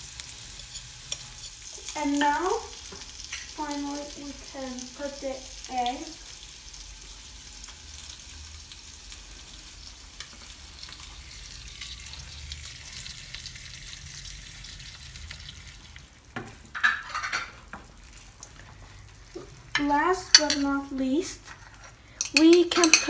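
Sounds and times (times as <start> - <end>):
eggs sizzling in a frying pan: 0.0 - 23.0
wooden spoon scraping a pan: 16.5 - 23.0.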